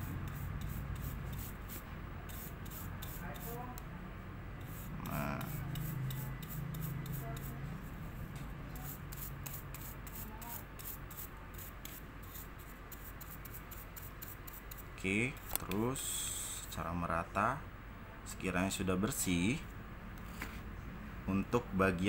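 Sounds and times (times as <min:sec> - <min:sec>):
bristle brush scrubbing: 0:00.0 - 0:03.6, 0:04.6 - 0:14.9.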